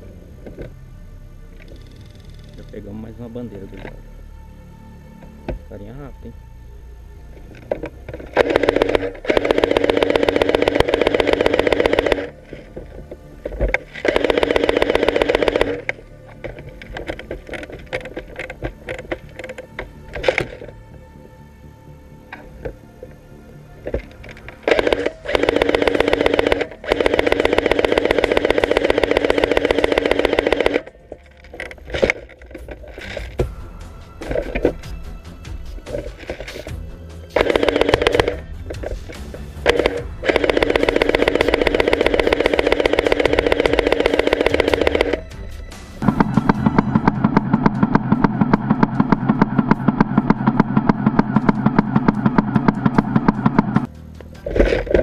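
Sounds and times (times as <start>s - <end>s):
airsoft rifle automatic fire: 8.4s - 12.6s, 13.9s - 18.5s, 24.6s - 30.9s, 37.4s - 38.4s, 39.6s - 45.2s.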